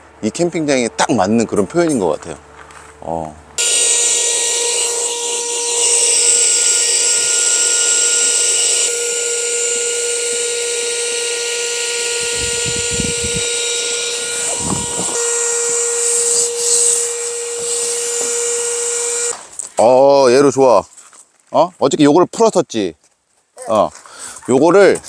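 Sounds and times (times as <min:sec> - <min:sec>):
electric air pump whining: 0:03.6 - 0:19.6.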